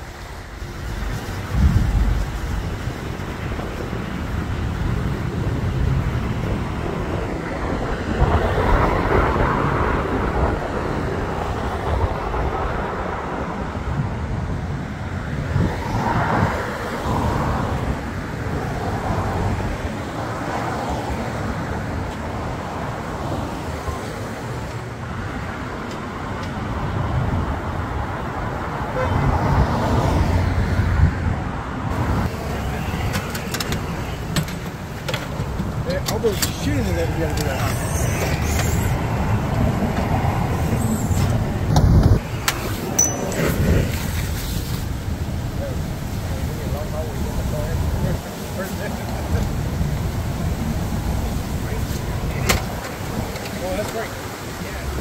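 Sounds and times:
cars passing: 0.0s - 55.0s.

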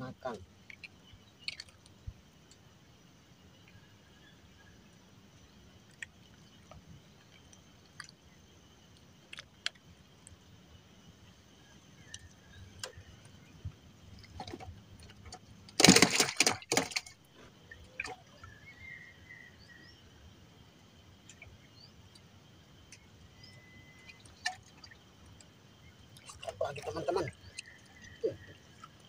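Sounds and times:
tackle clattering in canoe: 14.2s - 17.2s.

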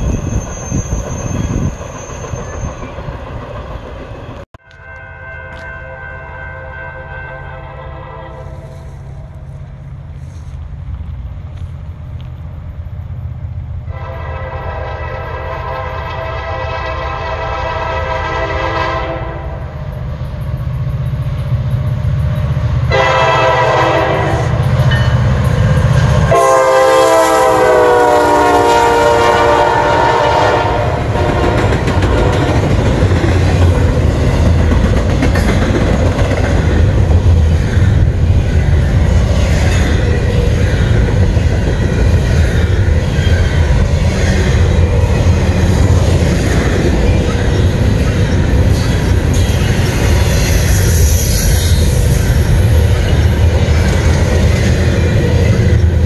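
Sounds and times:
diesel locomotive engines: 0.0s - 56.0s
train rumbling by: 0.0s - 56.0s
locomotive air horn blasts: 4.6s - 9.5s, 13.9s - 19.8s, 22.9s - 24.7s, 26.3s - 31.7s.

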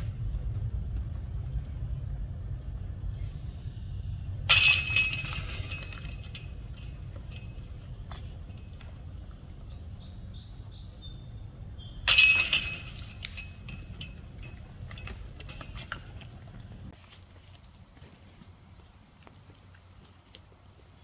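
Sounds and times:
metal chains jangling: 4.5s - 8.8s, 12.0s - 16.9s
small metal clink: 4.5s - 9.1s, 12.0s - 16.9s.

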